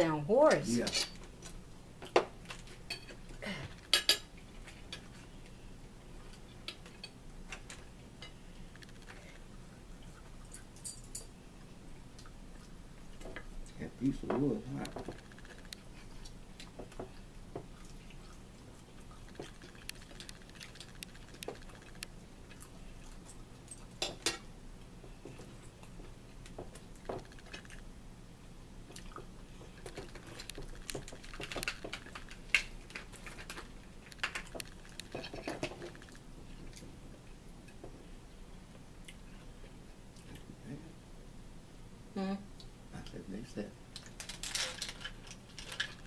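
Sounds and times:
fork clicking and scraping on plates: 3.8s - 5.2s
chewing and mouth noises: 14.8s - 24.1s, 25.3s - 27.8s, 28.8s - 37.8s.

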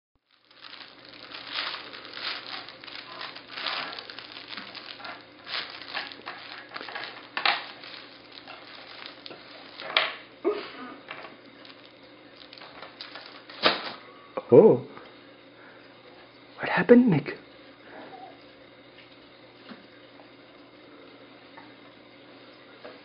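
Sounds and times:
cloth book crinkling: 0.2s - 10.1s, 11.5s - 14.0s.

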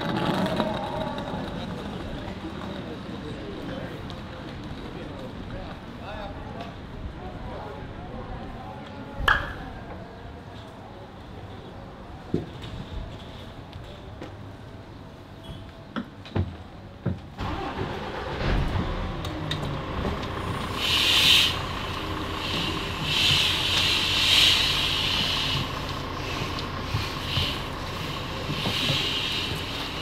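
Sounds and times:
coach engine idling: 17.4s - 30.0s
high hiss: 20.6s - 30.0s.

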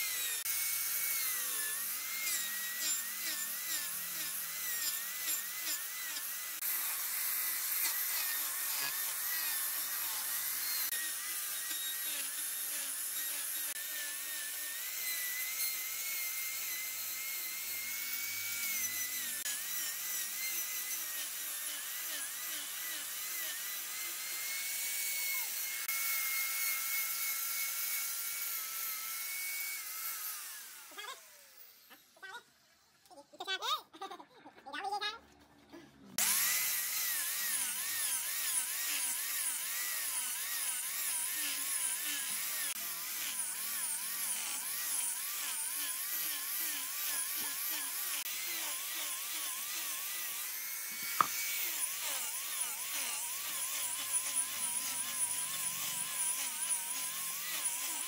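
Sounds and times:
angle grinder whine: 0.0s - 28.1s, 36.2s - 58.0s.

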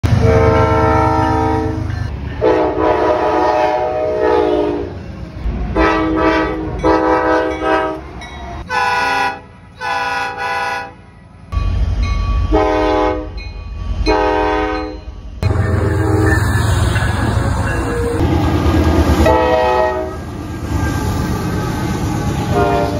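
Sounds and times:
locomotive air horn blasts: 0.0s - 5.0s, 5.8s - 8.0s, 8.6s - 11.0s, 12.5s - 13.4s, 14.1s - 16.3s, 19.2s - 20.3s, 22.5s - 22.9s
low rumble of passing trains: 0.0s - 22.9s.

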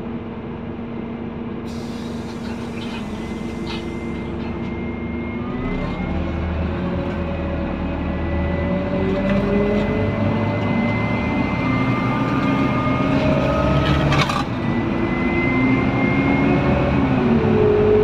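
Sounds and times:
bus diesel engine: 0.0s - 18.0s
hiss: 1.7s - 4.1s.

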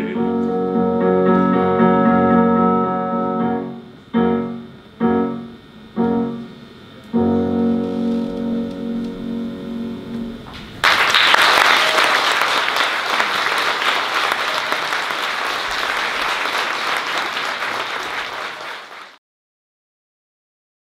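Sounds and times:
piano chord: 0.0s - 10.8s
audience applause: 10.6s - 19.2s.

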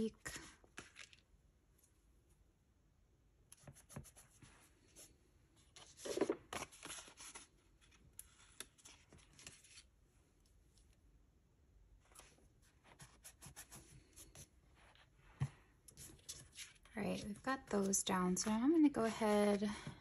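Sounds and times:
paper sticker sheet rustling: 5.7s - 9.9s.

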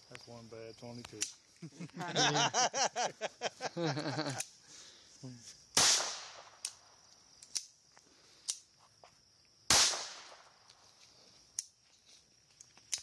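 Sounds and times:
handgun shots: 5.8s - 6.8s, 9.7s - 10.4s.

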